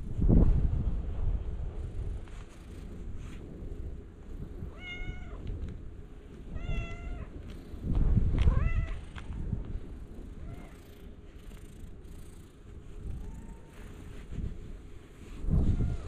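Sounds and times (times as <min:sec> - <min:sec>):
low rumble: 0:00.0 - 0:16.0
cat meowing: 0:04.7 - 0:05.4, 0:06.5 - 0:07.3, 0:08.5 - 0:09.0.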